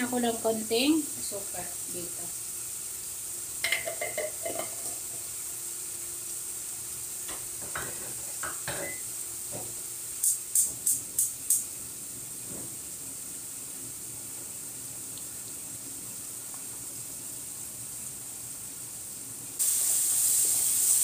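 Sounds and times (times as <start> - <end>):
onions sizzling in oil: 0.0 - 21.0
gas stove igniter clicks: 10.2 - 11.7.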